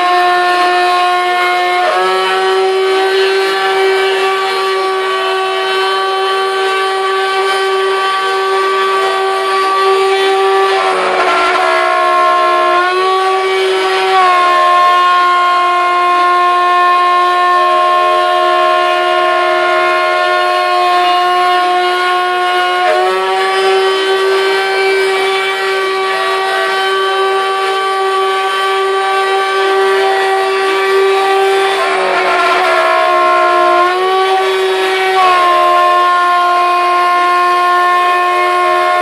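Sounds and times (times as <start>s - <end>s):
router spindle whining: 1.9s - 14.7s, 22.8s - 36.8s
end mill cutting metal: 1.9s - 15.1s, 21.8s - 39.0s.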